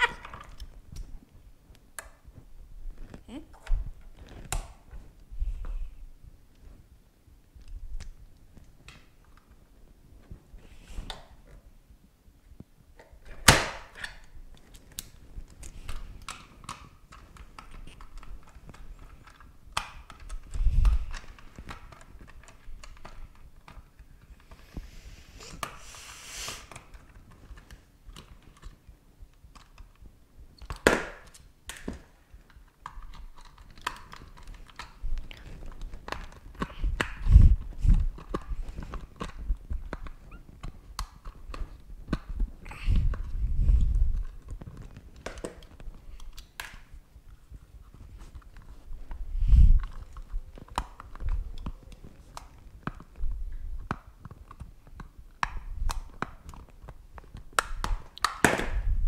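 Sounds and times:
screwdriver clicking on plastic: 30.6s - 37.3s.

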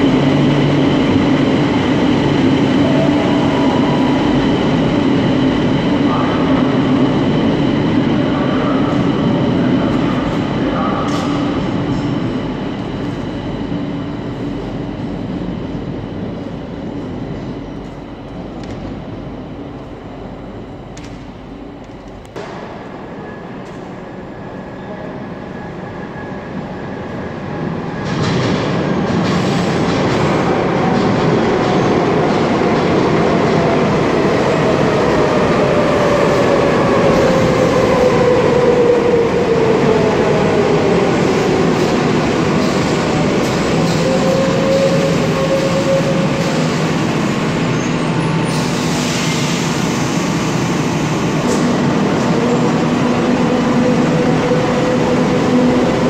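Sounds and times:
train idling hum: 0.0s - 56.0s
train rumble: 0.0s - 56.0s.

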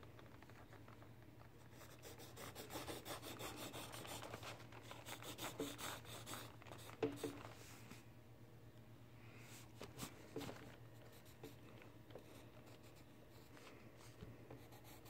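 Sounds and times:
pencil scratching on paper: 1.7s - 4.4s, 5.0s - 7.3s, 14.6s - 15.0s.

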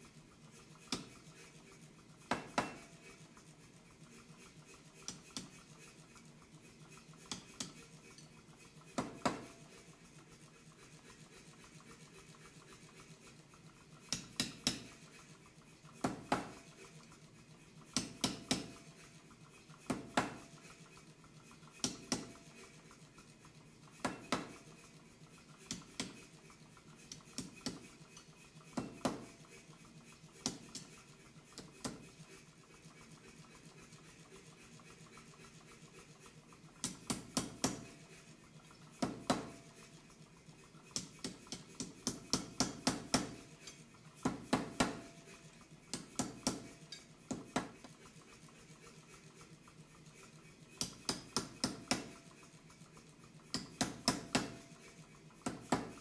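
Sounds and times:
power hammer striking hot steel: 2.3s - 2.8s, 14.1s - 14.9s, 16.0s - 16.6s, 18.0s - 18.8s, 19.9s - 20.4s, 21.8s - 22.4s, 24.0s - 24.6s, 28.7s - 29.3s, 36.8s - 37.9s, 39.0s - 39.5s, 41.0s - 45.1s, 45.9s - 47.8s, 50.8s - 52.2s, 53.5s - 54.6s.

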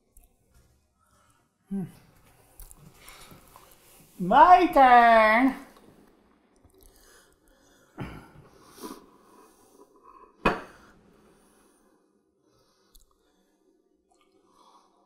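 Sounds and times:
breath through the nose: 6.8s - 13.8s.

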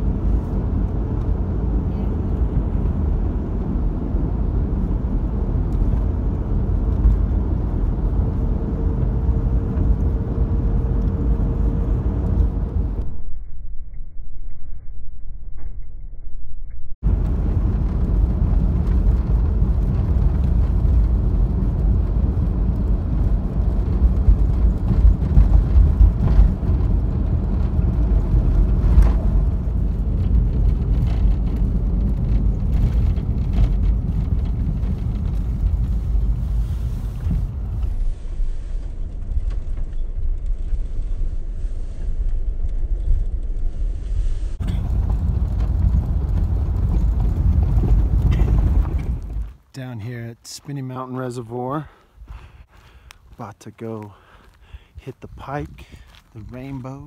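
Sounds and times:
tyre and engine rumble: 0.0s - 13.1s, 17.0s - 57.0s
vehicle jolts: 43.8s - 49.9s.

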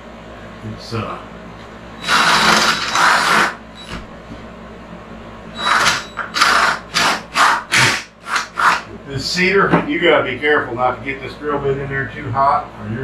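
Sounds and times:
cordless drill boring through wood: 2.0s - 4.0s, 5.6s - 8.9s.

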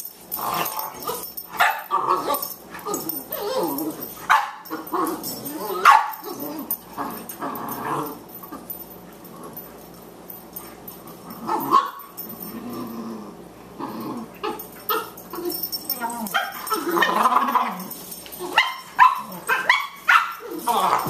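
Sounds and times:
dogs growling: 0.3s - 10.0s, 10.8s - 19.7s, 20.4s - 21.0s
dogs barking: 1.0s - 3.0s, 4.2s - 4.9s, 5.7s - 6.4s, 16.2s - 21.0s.

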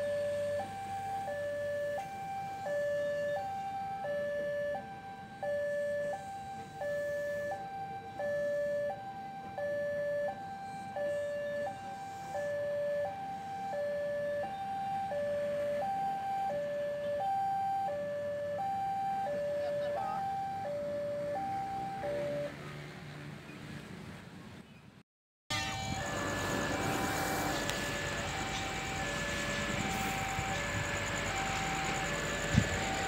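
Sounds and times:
two-tone crossing alarm: 0.0s - 22.6s, 25.5s - 33.0s
train rumbling past: 25.6s - 33.0s.

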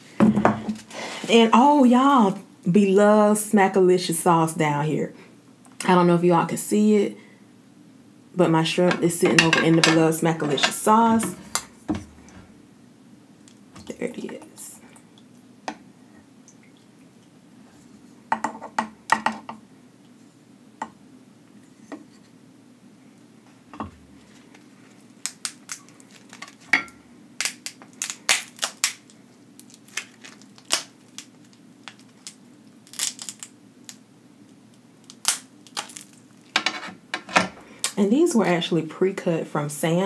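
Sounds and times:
crab shell cracking and crunching: 24.5s - 26.7s, 27.4s - 36.6s.

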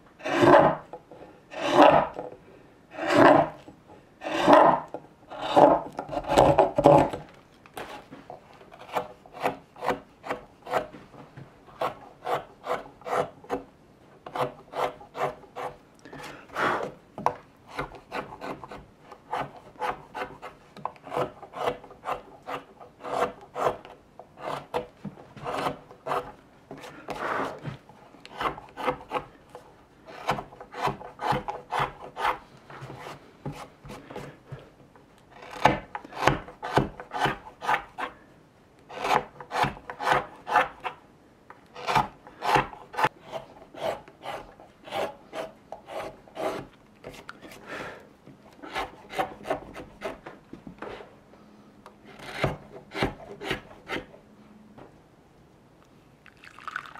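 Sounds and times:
gouge cutting wood: 0.2s - 0.9s, 1.5s - 2.2s, 2.9s - 7.2s, 8.8s - 10.9s, 11.8s - 13.6s, 14.3s - 15.8s, 17.7s - 27.6s, 28.3s - 29.3s, 30.1s - 32.4s, 35.3s - 38.1s, 38.9s - 41.0s, 41.8s - 47.2s, 48.6s - 50.2s, 52.1s - 54.1s
knife carving wood: 0.2s - 2.3s, 2.9s - 11.0s, 11.7s - 34.6s, 35.2s - 38.2s, 38.8s - 41.0s, 41.6s - 47.7s, 48.4s - 50.3s, 52.0s - 54.2s.

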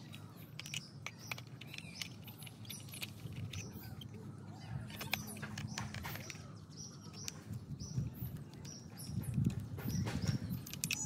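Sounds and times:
hard plastic clicks and scrapes: 0.0s - 7.6s
birds chirping: 0.0s - 11.0s.

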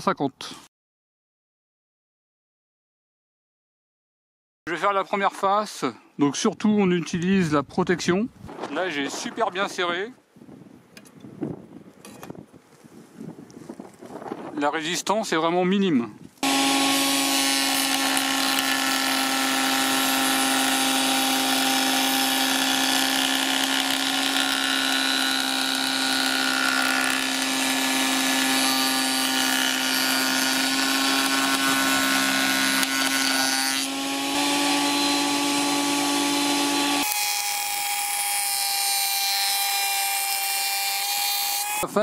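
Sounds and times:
planer machine whine: 16.4s - 37.6s.

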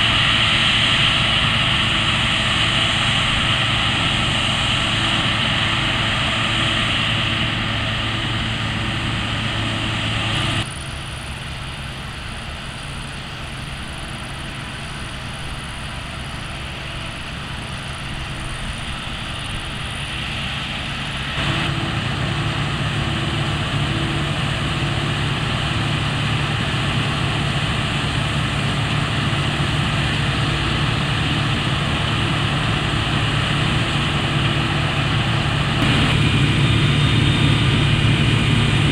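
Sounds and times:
combine harvester engine drone: 0.0s - 38.9s
cutter bar and threshing drum hum: 21.3s - 38.9s.

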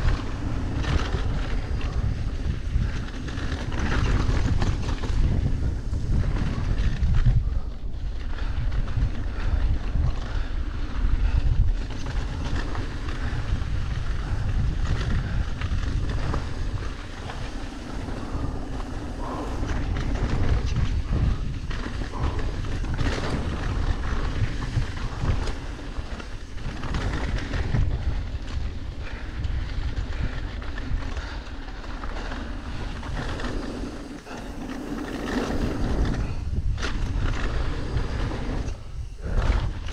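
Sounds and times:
tyres rolling on loose dirt: 0.0s - 39.9s
wind buffeting microphone: 0.0s - 39.9s.

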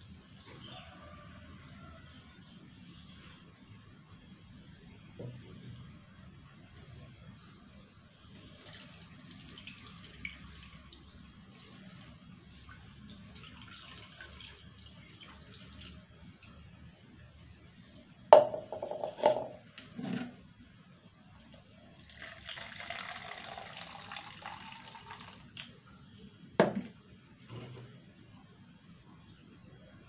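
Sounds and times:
water pouring into a jug: 8.4s - 16.7s, 21.3s - 25.7s
water trickling from a jug: 8.4s - 16.7s, 21.3s - 25.8s
plastic jugs knocking on wood: 18.4s - 19.6s, 26.6s - 26.9s.

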